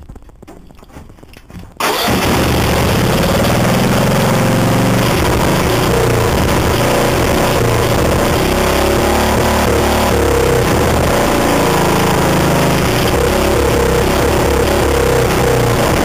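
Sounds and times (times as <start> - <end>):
small gasoline engine running: 1.8 - 16.0.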